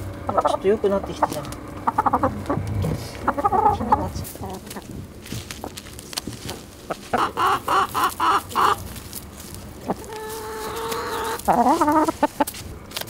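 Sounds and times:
chickens clucking: 0.0 - 12.7
chicken wavering cry: 0.2 - 4.9, 6.8 - 9.0, 9.7 - 12.6.

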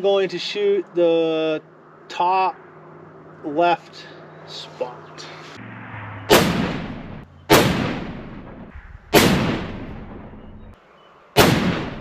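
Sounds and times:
rifle shots with echo: 6.3 - 10.5, 11.4 - 12.0.

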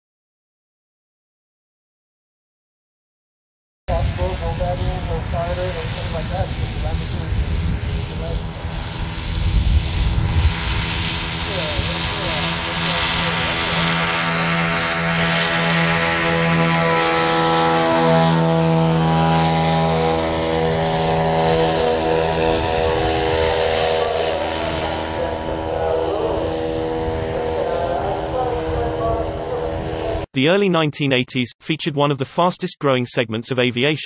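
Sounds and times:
light aircraft engines and propellers: 3.9 - 30.3.

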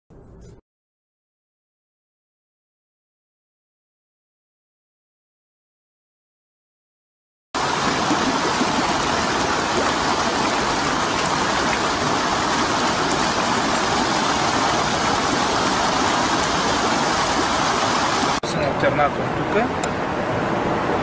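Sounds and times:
stream water rushing: 7.6 - 21.0.

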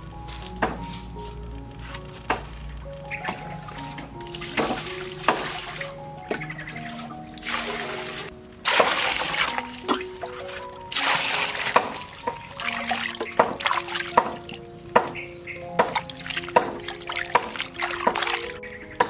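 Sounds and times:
gentle background music: 0.0 - 19.0
water splashing into a basin: 4.2 - 14.6, 15.8 - 18.6.

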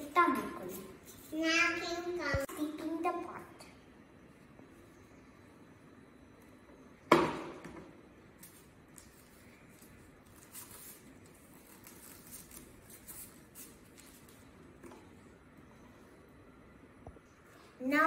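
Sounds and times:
scratching and rustling on paper: 8.4 - 14.6.

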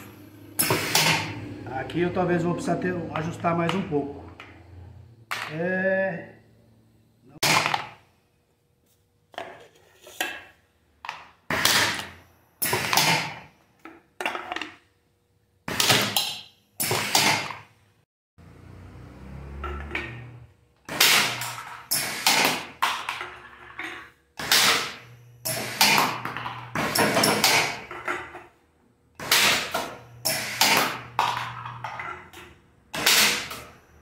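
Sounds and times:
pneumatic can crusher clacks: 0.0 - 1.4, 11.5 - 13.5, 15.7 - 17.7, 20.9 - 28.4, 29.2 - 33.7.

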